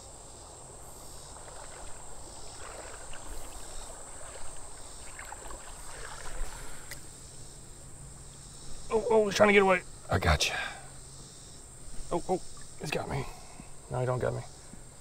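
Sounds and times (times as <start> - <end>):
cricket chorus: 0.0 - 15.0
feet wading through water: 0.8 - 7.2.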